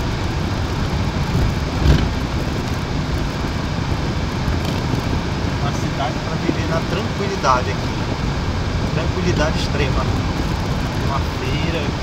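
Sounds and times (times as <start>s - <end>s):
car rumbling over cobblestones: 0.0s - 12.0s.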